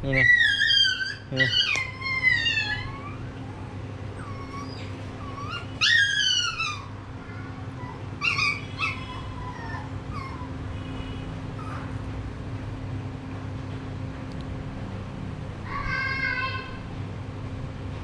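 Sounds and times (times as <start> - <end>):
baby monkey crying: 0.0 - 10.5.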